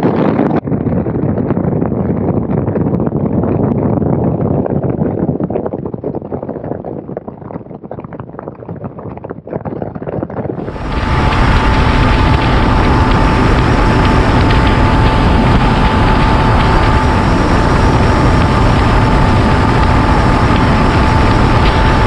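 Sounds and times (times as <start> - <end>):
outboard motor whine: 0.0 - 0.6, 10.6 - 22.0
rush of air and water: 0.0 - 2.0, 10.6 - 22.0
wind buffeting microphone: 0.0 - 22.0
spray of boat wake: 10.6 - 22.0.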